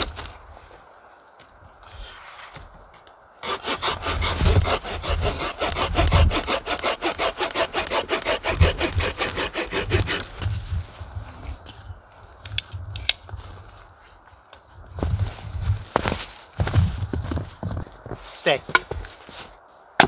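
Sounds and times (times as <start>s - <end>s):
hand saw cutting log: 3.4s - 10.5s.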